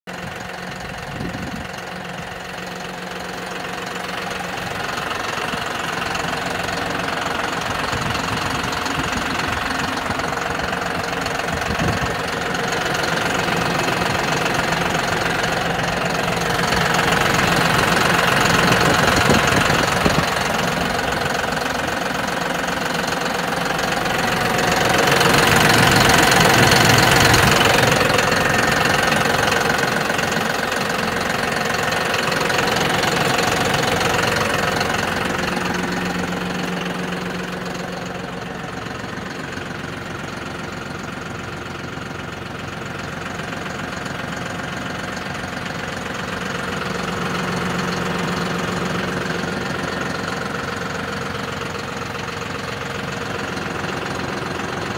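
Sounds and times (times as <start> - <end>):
diesel tractor engine idling: 0.0 - 54.9.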